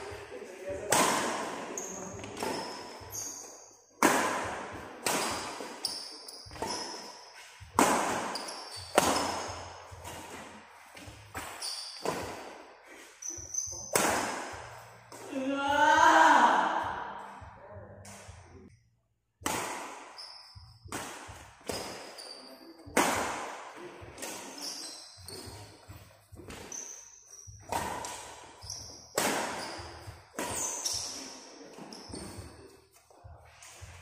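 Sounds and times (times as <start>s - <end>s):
racket hitting shuttlecock: 0.8s - 10.4s, 11.3s - 12.6s, 13.8s - 15.2s, 19.4s - 22.3s, 22.9s - 25.6s, 27.6s - 32.5s
shoes squeaking on court: 1.6s - 3.8s, 4.7s - 14.0s, 20.1s - 23.0s, 24.1s - 34.0s.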